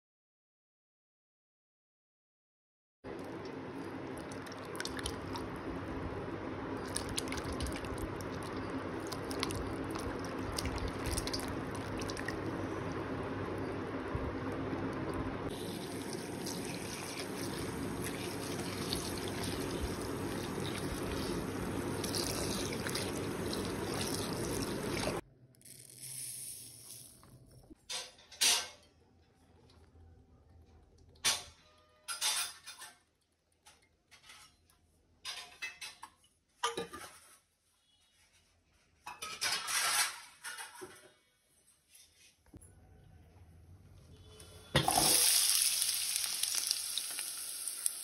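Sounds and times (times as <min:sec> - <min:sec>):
water dripping: 0:03.2 - 0:05.6, 0:06.8 - 0:12.5, 0:15.0 - 0:25.2
water sloshing and splashing: 0:06.8 - 0:12.5, 0:15.5 - 0:25.2.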